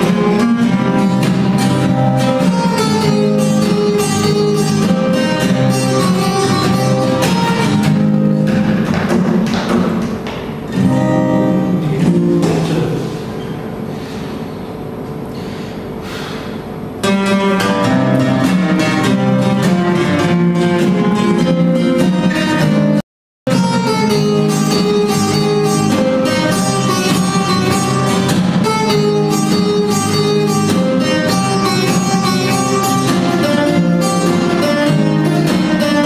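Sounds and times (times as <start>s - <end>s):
acoustic guitars playing: 0.0s - 36.0s.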